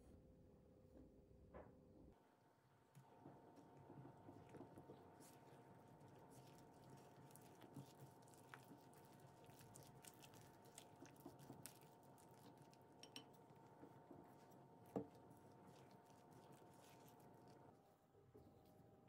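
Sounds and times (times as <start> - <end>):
spatula stirring dough in glass bowl: 3.0 - 17.7.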